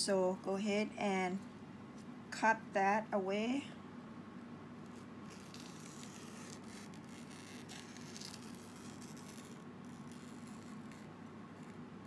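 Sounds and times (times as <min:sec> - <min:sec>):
steady low hum: 0:00.0 - 0:12.0
banana leaf rustling and crackling: 0:05.3 - 0:11.0.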